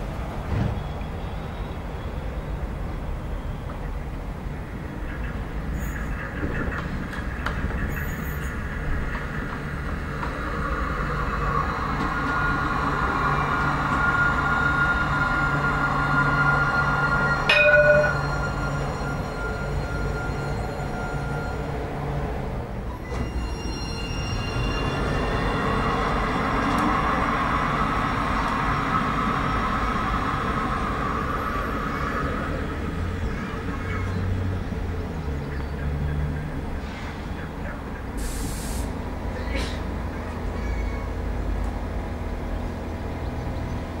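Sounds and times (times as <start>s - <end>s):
tram running on track: 0.0s - 44.0s
steady high whine: 8.5s - 22.1s.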